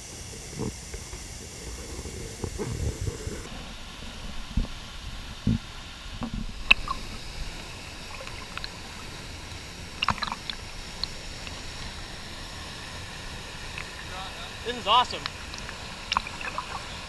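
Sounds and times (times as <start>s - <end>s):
water splashing close by: 0.0s - 17.0s
waterfall rushing: 5.8s - 17.0s.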